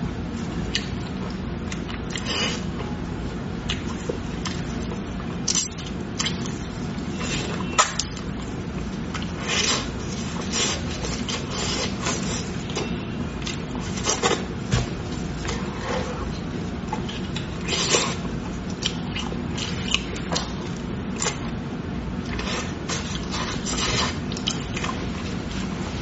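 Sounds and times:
chewing meat off a bone: 15.4s - 25.4s.

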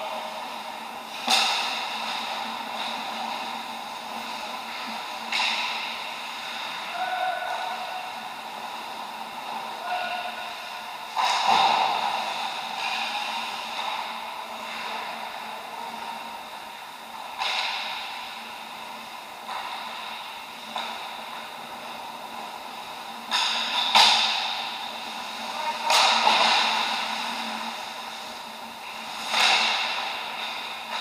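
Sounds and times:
steady low hum: 0.0s - 31.0s
hockey stick and puck cracks: 1.2s - 2.9s, 5.3s - 6.7s, 11.1s - 14.0s, 17.4s - 18.3s, 23.3s - 24.7s, 25.8s - 27.2s, 29.0s - 31.0s.

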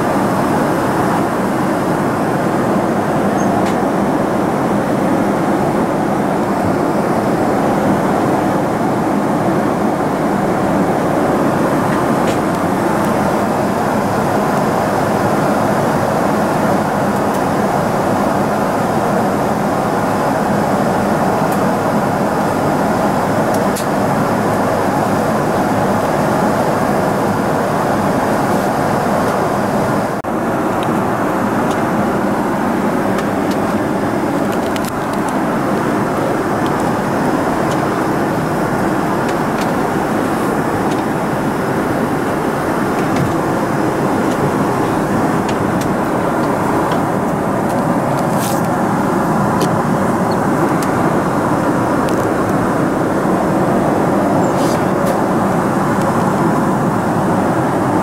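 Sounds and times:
airplane cabin engine rush: 0.0s - 58.0s.

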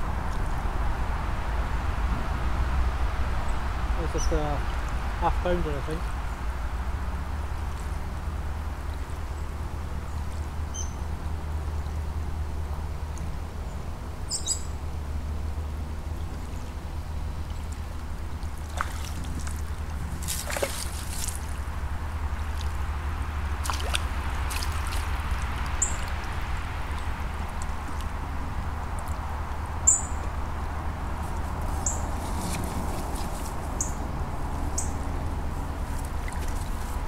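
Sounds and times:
steady low rumble: 0.0s - 37.0s
water splashing at a bank: 15.5s - 33.8s, 34.4s - 37.0s.

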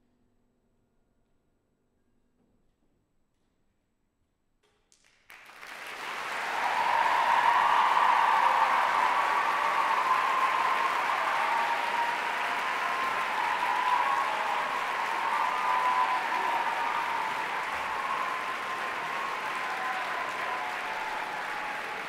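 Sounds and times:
audience applauding: 5.0s - 22.0s.

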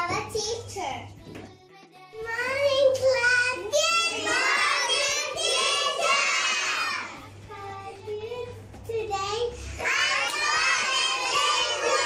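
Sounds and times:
young child singing: 1.1s - 12.0s.

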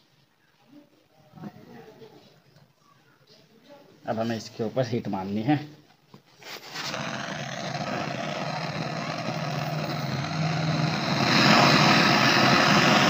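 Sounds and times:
gas torch lighting: 6.6s - 13.0s
torch flame hissing: 6.6s - 13.0s.

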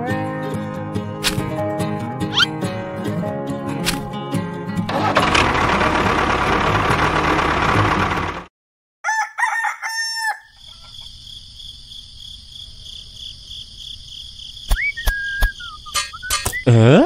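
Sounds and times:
rooster crowing: 9.0s - 11.0s
short whistling glide: 14.7s - 16.7s.

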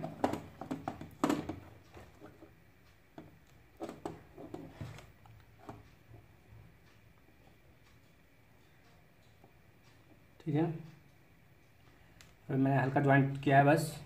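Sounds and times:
light clicks and taps of handling: 10.9s - 12.4s.

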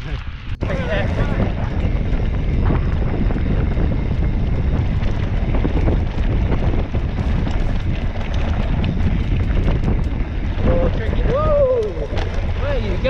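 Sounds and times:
bike tyres rolling on gravel: 0.0s - 13.0s
wind buffeting microphone: 0.0s - 13.0s.

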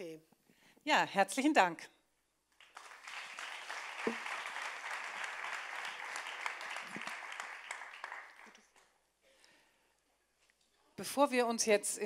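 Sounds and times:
audience applauding: 2.6s - 8.9s.

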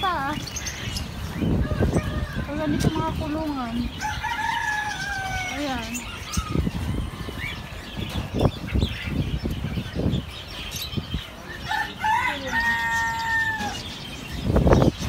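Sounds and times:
rooster crowing: 11.7s - 13.8s.

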